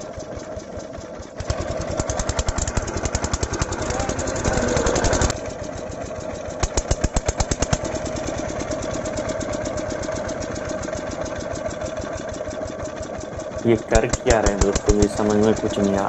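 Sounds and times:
diesel pump engine running: 0:00.0 - 0:16.0.

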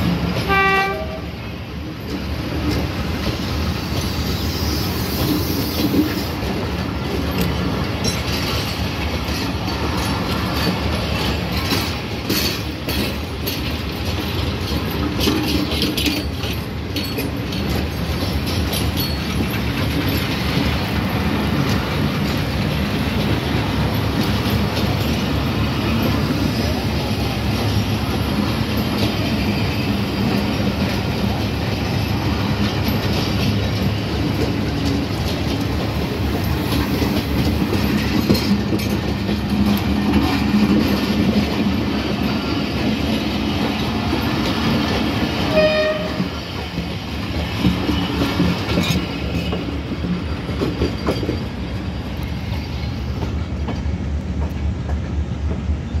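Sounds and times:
train wheels rumbling on rails: 0:00.0 - 0:56.0
train horn: 0:00.4 - 0:01.4, 0:45.5 - 0:46.4.

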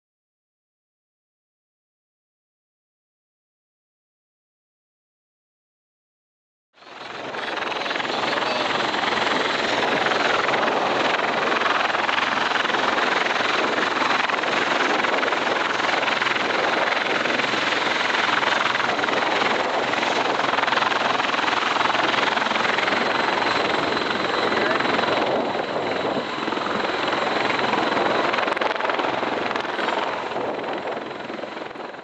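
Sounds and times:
faint high whine: 0:06.8 - 0:12.2
rotor and turbine noise: 0:06.8 - 0:32.0.

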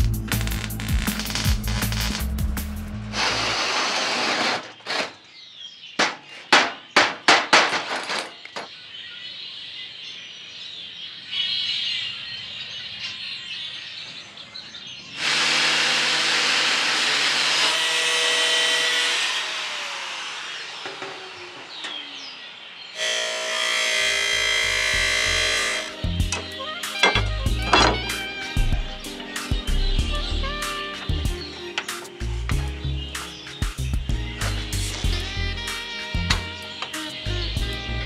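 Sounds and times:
burst of noise: 0:00.3 - 0:04.4
power tool running: 0:00.3 - 0:05.1, 0:15.2 - 0:22.4, 0:23.0 - 0:29.4.

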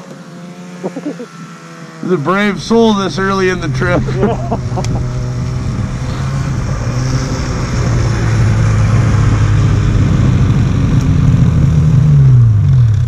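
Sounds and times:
snowmobile engines idling: 0:00.8 - 0:08.0.

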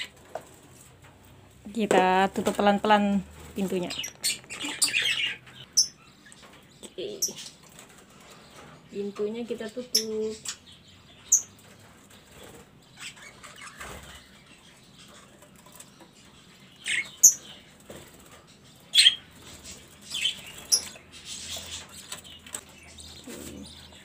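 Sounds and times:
budgerigars chirping: 0:00.0 - 0:00.2, 0:03.6 - 0:07.6, 0:09.7 - 0:24.0
wings fluttering: 0:11.6 - 0:24.0.

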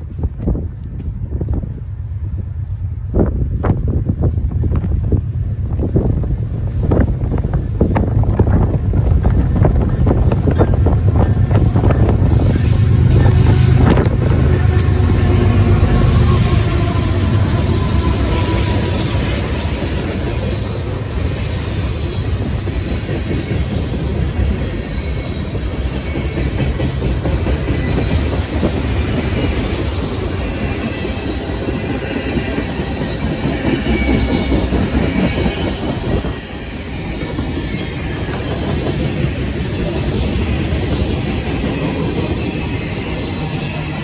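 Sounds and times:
train wheels rumbling on rails: 0:00.0 - 0:44.0
high wheel squeal: 0:10.3 - 0:20.9, 0:24.5 - 0:26.8, 0:29.0 - 0:44.0.

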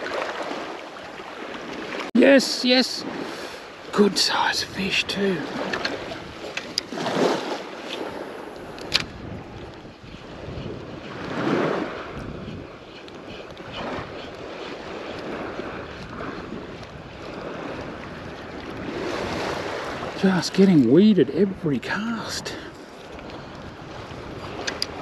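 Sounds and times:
small waves washing: 0:00.0 - 0:25.0
wind on microphone: 0:04.3 - 0:21.6, 0:22.5 - 0:25.0.

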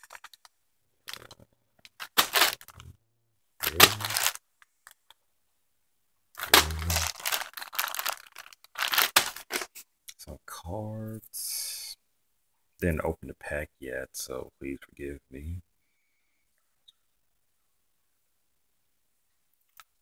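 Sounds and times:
plastic bags crinkling: 0:00.0 - 0:03.0, 0:03.6 - 0:05.1, 0:06.4 - 0:09.8.

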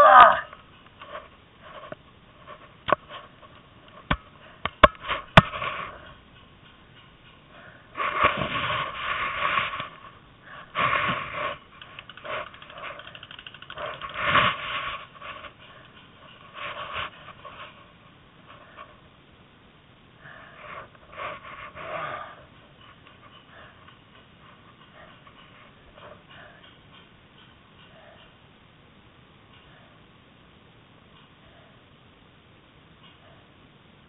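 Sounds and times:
heavy rasping breathing: 0:07.3 - 0:17.8, 0:20.2 - 0:27.1, 0:27.8 - 0:28.4.

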